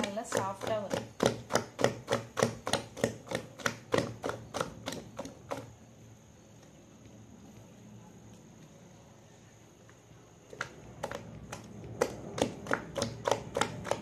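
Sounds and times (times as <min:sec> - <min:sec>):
hand beating batter in steel vessel: 0:00.0 - 0:05.8, 0:10.5 - 0:14.0.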